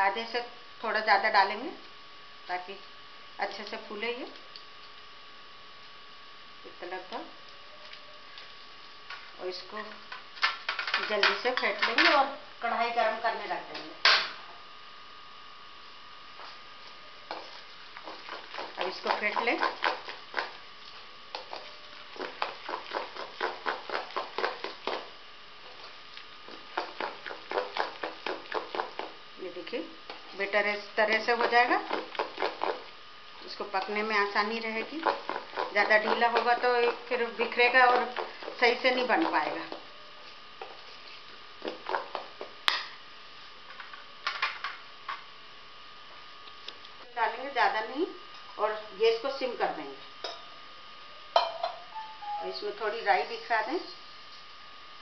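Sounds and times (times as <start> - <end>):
spoon clinking and scraping bowl: 51.4 - 52.3.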